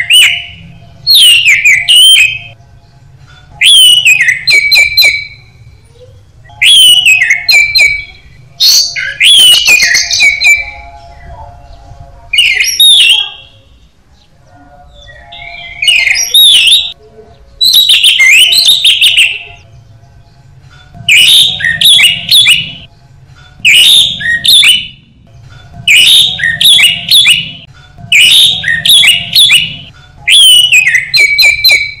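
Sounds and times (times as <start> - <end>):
thrush singing whistled phrases: 0.0 - 2.6, 3.6 - 5.4, 6.4 - 11.3, 12.3 - 13.6, 15.0 - 17.0, 17.6 - 19.6, 21.1 - 22.9, 23.6 - 25.0, 25.9 - 32.0.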